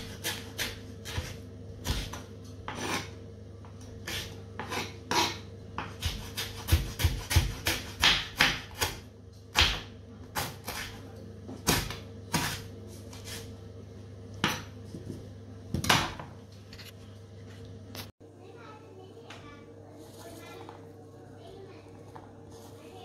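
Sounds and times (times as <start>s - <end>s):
knife chopping on wooden board: 0.0s - 3.1s, 4.0s - 11.0s, 11.6s - 13.4s.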